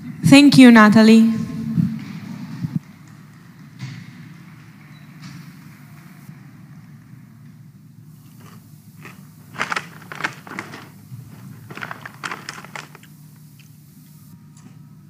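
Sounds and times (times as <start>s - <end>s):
steady low hum: 5.4s - 15.0s.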